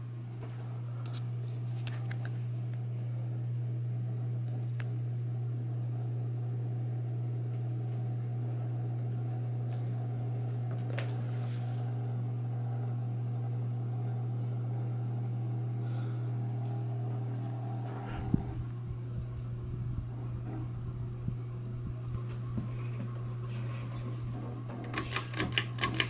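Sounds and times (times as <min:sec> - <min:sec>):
ceiling fan motor humming: 0:00.0 - 0:26.0.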